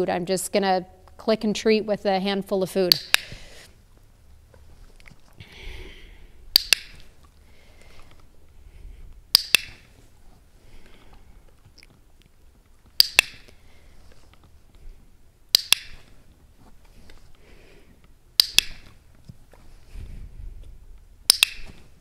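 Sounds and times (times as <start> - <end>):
dog-training clicker clicking: 2.9 - 3.4, 6.5 - 7.1, 9.3 - 9.8, 13.0 - 13.5, 15.5 - 16.1, 18.4 - 19.0, 21.3 - 21.8.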